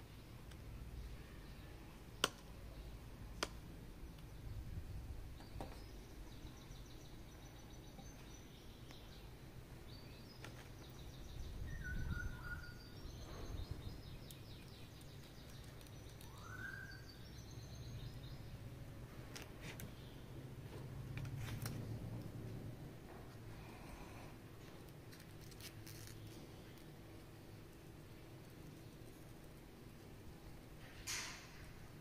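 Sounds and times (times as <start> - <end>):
sharp plastic clicks: 2.2 - 2.5
high chirping: 10.0 - 18.6.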